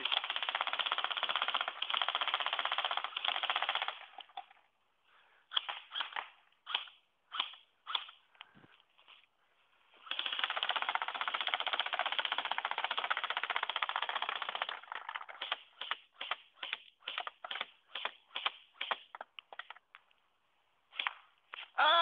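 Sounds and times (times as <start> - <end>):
airsoft gun firing: 10.1 - 19.1.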